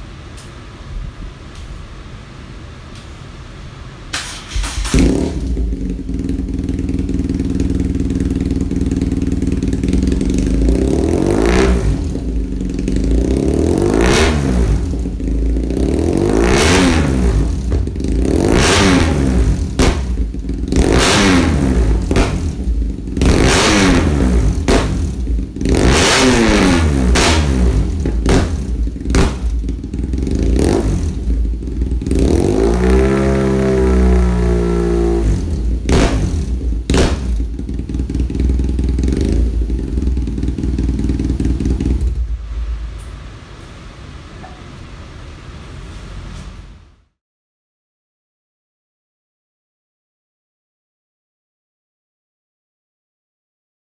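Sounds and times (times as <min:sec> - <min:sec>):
motorcycle engine idling and revving: 0:04.2 - 0:42.7
exhaust pops: 0:17.3 - 0:30.2, 0:35.4 - 0:38.3.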